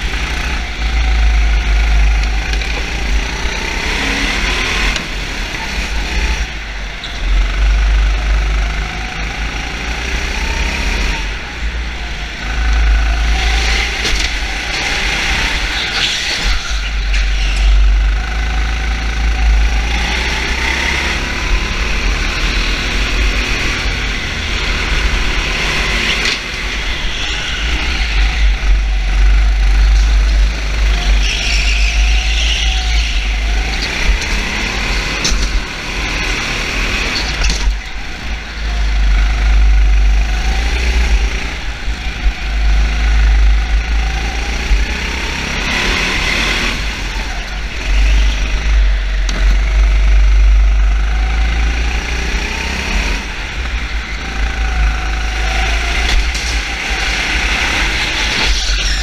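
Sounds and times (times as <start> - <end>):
vehicle engines revving: 0.0 - 59.0
heavy low rumble: 26.5 - 35.9.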